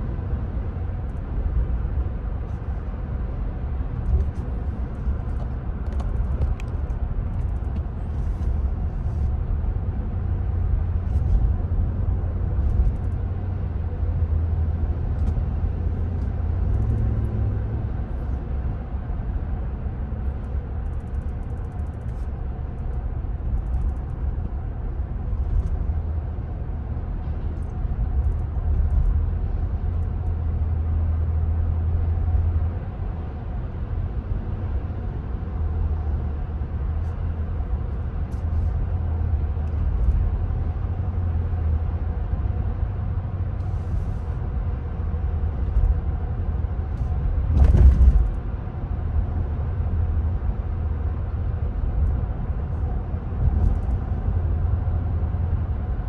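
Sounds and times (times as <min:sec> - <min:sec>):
car road and engine rumble: 0:00.0 - 0:56.0.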